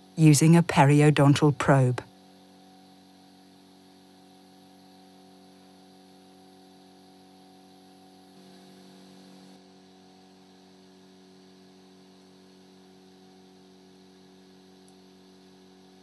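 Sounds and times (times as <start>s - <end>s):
faint electrical hum: 0.0s - 16.0s.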